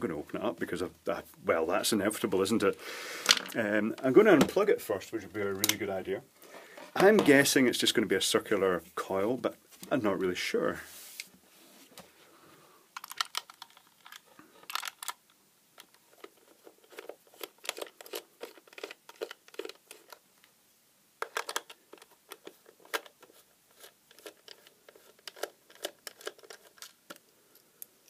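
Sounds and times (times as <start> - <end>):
plastic case being handled: 6.7 - 7.5, 13.0 - 15.2, 15.8 - 20.2, 21.2 - 27.2.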